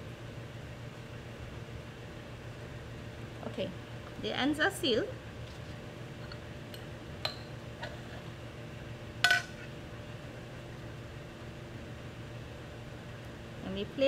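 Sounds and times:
low room hum: 0.0s - 14.0s
glassware clinking: 9.3s - 9.6s.

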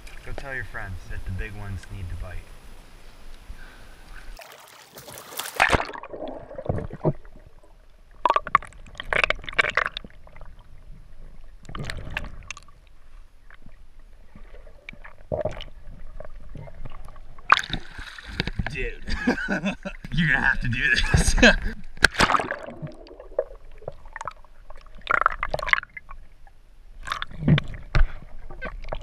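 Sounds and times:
underwater water noise: 0.0s - 29.0s
loud water splash: 4.4s - 7.0s, 22.0s - 23.4s.

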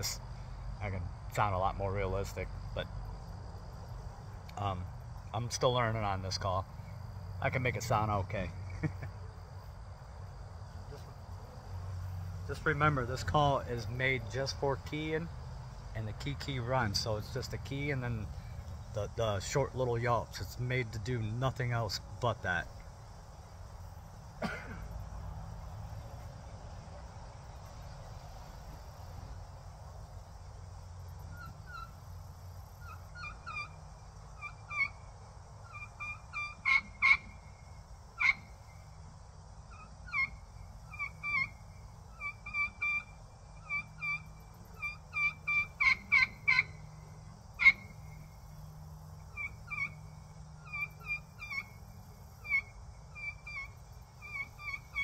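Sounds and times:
turkey call whistles and yelps: 31.3s - 32.0s, 32.8s - 33.8s, 34.4s - 35.0s, 35.7s - 37.4s, 38.2s - 38.5s, 39.7s - 46.8s, 47.6s - 48.0s, 49.3s - 50.0s, 50.6s - 51.7s, 52.4s - 55.0s.

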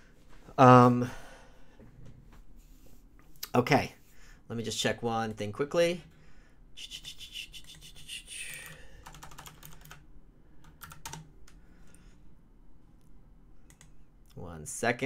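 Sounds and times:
keyboard typing clicks: 8.5s - 10.0s, 10.6s - 11.6s, 13.6s - 14.0s.

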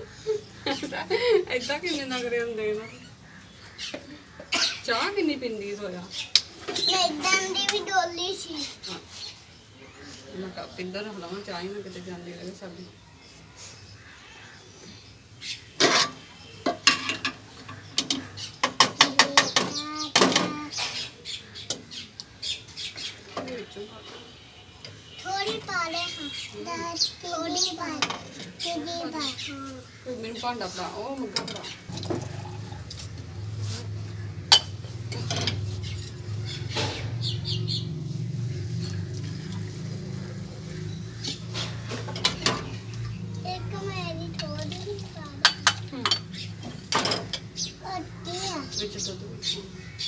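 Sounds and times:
metal utensils clinking against pot: 15.8s - 19.7s, 34.5s - 35.7s
tea pouring between cups: 31.9s - 33.2s.

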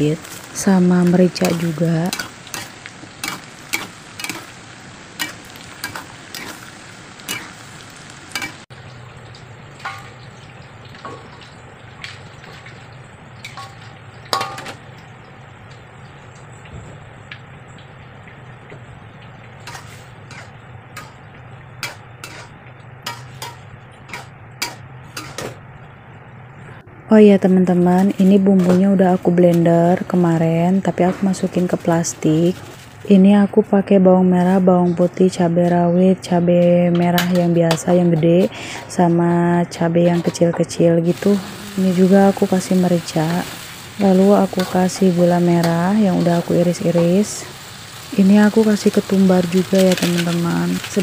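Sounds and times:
frying sizzle: 0.0s - 51.0s
metal spatula scraping a wok: 5.2s - 7.6s, 19.6s - 21.2s, 21.8s - 25.6s.

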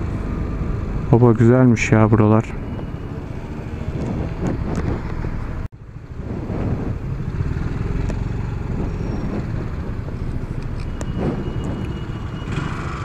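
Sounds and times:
wind on microphone: 2.7s - 13.0s.

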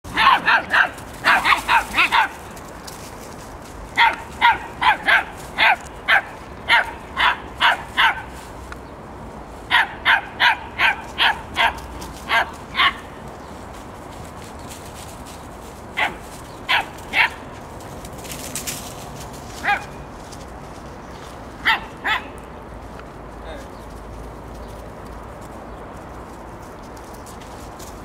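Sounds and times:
dog barking: 0.1s - 2.4s, 4.0s - 8.3s, 9.7s - 13.1s, 16.0s - 17.4s, 19.6s - 20.0s, 21.6s - 22.3s.

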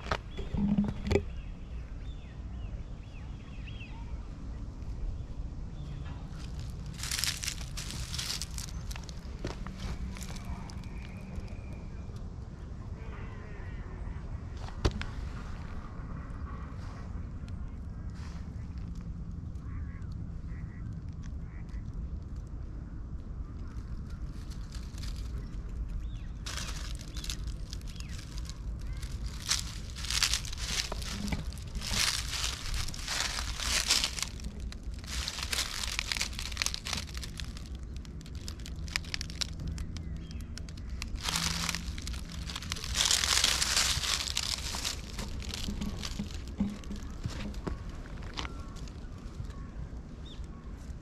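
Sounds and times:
dry leaves crunching underfoot: 5.8s - 12.0s, 23.6s - 50.6s.

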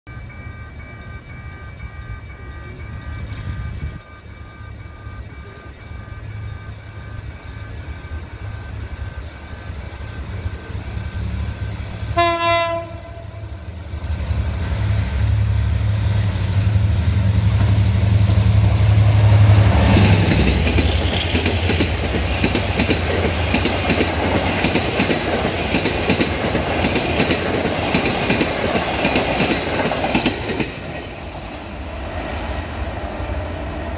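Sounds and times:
level-crossing warning bell: 0.1s - 15.7s, 17.5s - 31.4s
train horn: 12.1s - 13.6s
train wheels clattering: 17.4s - 32.5s.

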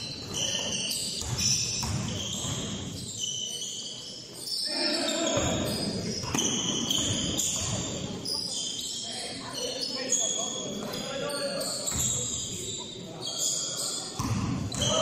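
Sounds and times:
sneakers squeaking: 0.0s - 15.0s
basketball bouncing on wooden floor: 1.2s - 2.8s.

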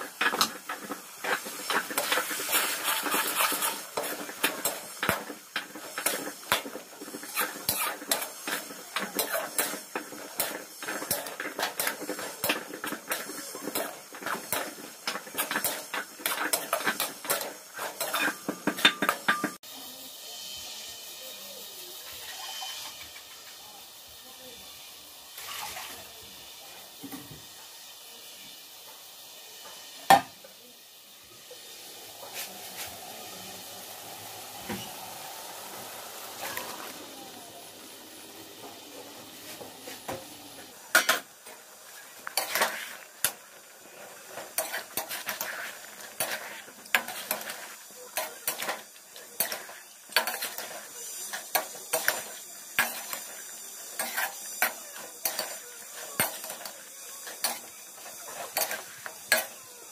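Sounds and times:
metal spatula scraping a pan: 0.0s - 19.6s, 22.1s - 23.4s, 40.9s - 59.6s
meat sizzling in a metal pan: 0.0s - 59.9s.

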